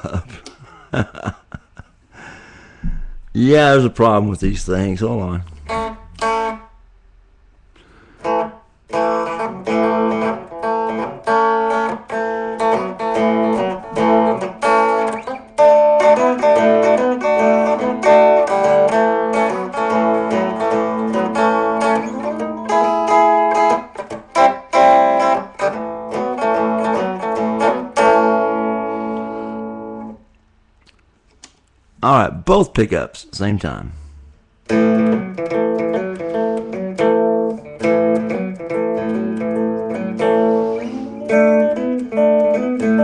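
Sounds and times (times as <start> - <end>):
low ringing guitar note: 5.4 - 6.8
electric guitar notes and chords: 5.4 - 6.9, 7.9 - 30.2, 34.0 - 43.0.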